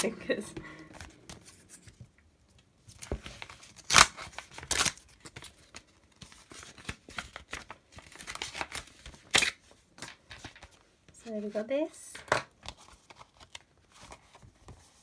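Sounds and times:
envelope being torn open: 3.4s - 5.8s, 6.4s - 9.6s.

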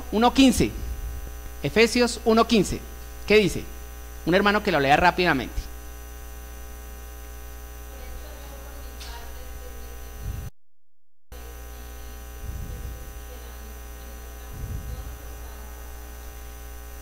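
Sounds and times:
electrical mains hum and buzz: 0.0s - 10.5s, 11.3s - 17.0s
dull low thuds: 10.2s - 10.5s, 12.4s - 13.0s, 14.5s - 15.2s.

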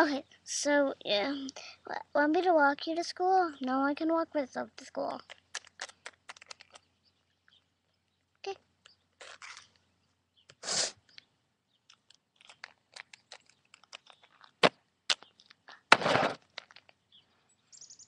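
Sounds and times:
plastic toy clicking on stone paving: 5.0s - 6.9s, 11.9s - 15.6s.

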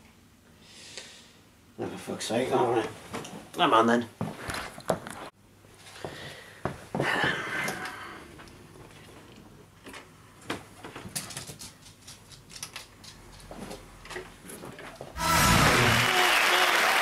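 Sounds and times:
music: 15.2s - 16.1s
loud applause: 15.2s - 17.0s.

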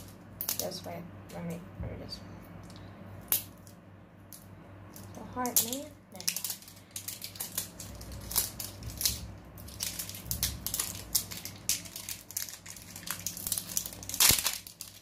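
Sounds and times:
crinkly wrapping tearing: 5.4s - 15.0s.

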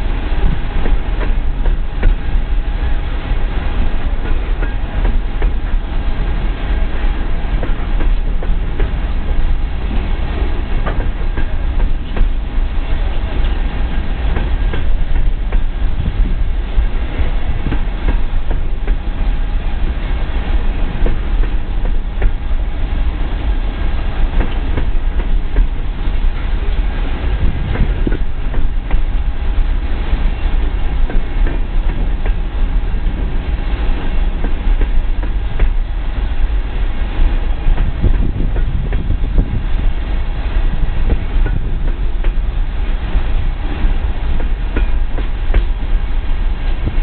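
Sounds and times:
train cars rumbling: 0.0s - 47.0s
wheels clacking over rail joints: 7.5s - 20.0s, 43.1s - 45.8s.

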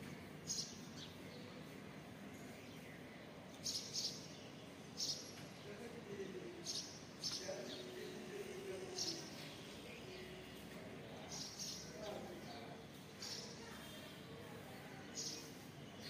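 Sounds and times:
faint outdoor background: 0.0s - 16.0s
small birds chirping: 0.3s - 16.0s.

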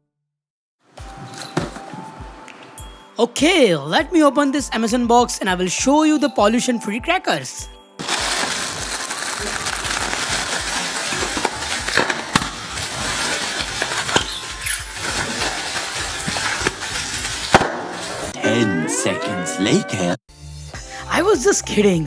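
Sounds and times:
packing pillows popping: 8.0s - 18.3s
plastic packing pillows crinkling: 8.0s - 18.3s.

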